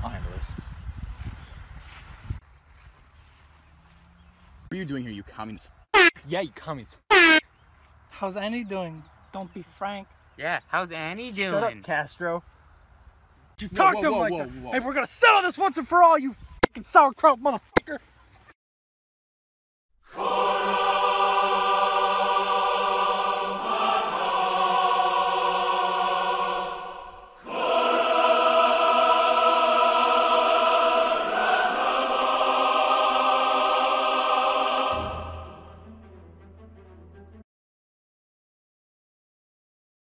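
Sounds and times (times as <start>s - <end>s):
choir-like chords music: 20.1s - 37.2s.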